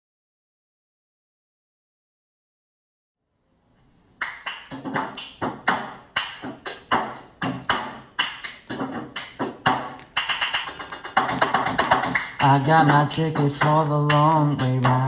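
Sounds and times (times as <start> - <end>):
hand claps: 4.2 - 15.0.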